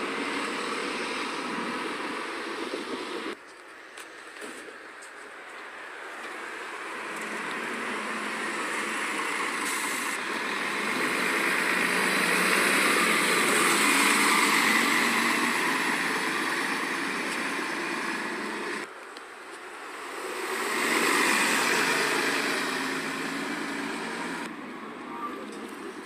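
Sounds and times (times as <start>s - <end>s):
bus passing by: 0.0s - 26.0s.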